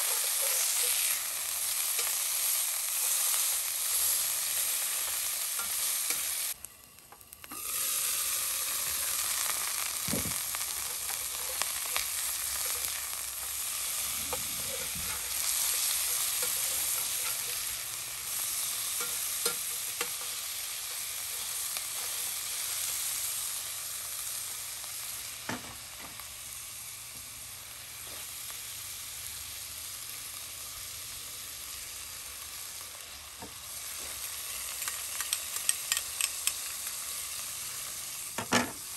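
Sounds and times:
meat patties sizzling in oil: 0:00.0 - 0:38.9
metal spoon clinking on pan: 0:19.0 - 0:21.0.

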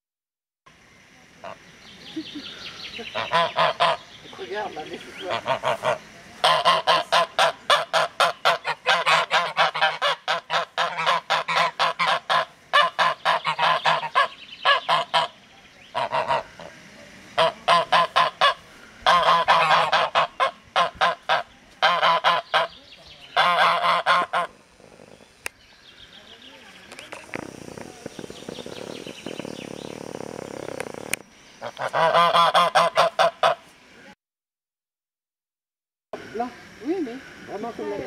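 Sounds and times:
geese honking: 0:03.0 - 0:16.7, 0:17.4 - 0:24.6, 0:27.0 - 0:33.7.

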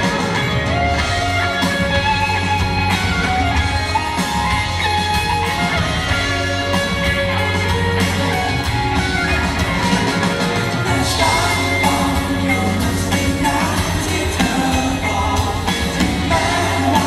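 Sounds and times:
electric guitar: 0:00.0 - 0:17.0
live rock band instrumental: 0:00.0 - 0:17.0.

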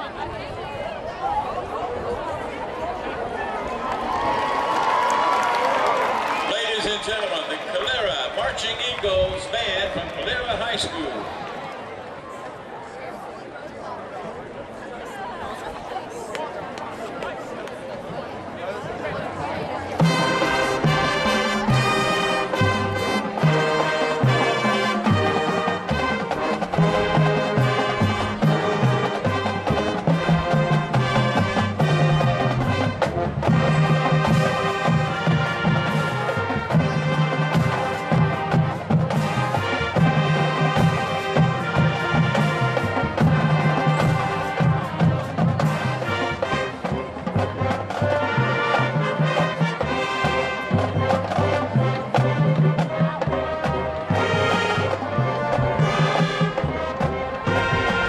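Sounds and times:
marching band playing: 0:04.8 - 0:11.3, 0:18.1 - 0:58.0.

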